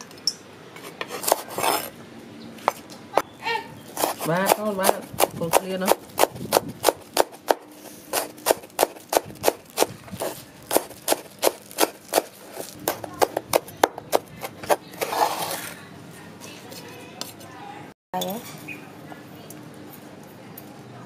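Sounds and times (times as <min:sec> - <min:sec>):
cleaver chopping on wooden board: 0:04.0 - 0:14.8.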